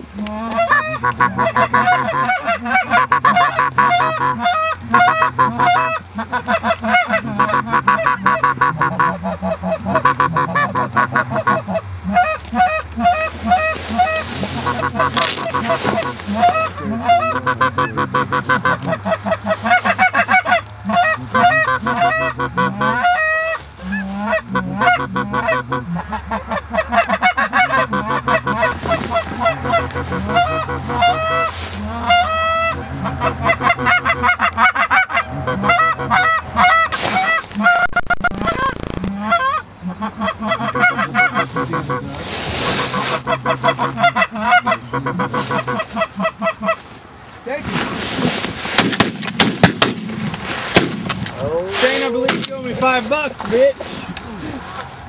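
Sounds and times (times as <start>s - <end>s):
geese honking: 0.0s - 55.0s
burst of noise: 36.9s - 39.3s, 47.6s - 52.4s.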